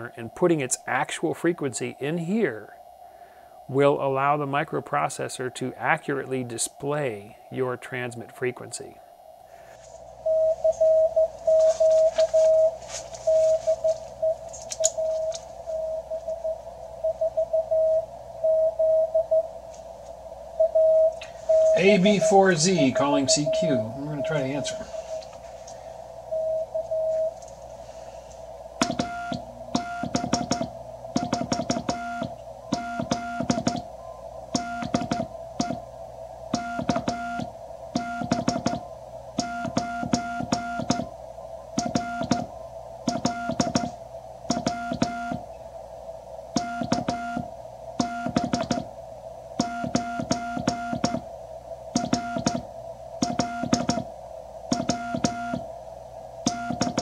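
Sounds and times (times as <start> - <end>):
receiver hiss: 0.0 - 57.0
morse code tone: 10.2 - 19.5, 20.6 - 25.3, 26.3 - 27.4, 28.8 - 35.8, 36.5 - 41.1, 41.8 - 45.5, 46.6 - 48.9, 49.6 - 51.2, 52.0 - 52.6, 53.2 - 54.1, 54.7 - 55.7, 56.5 - 57.0.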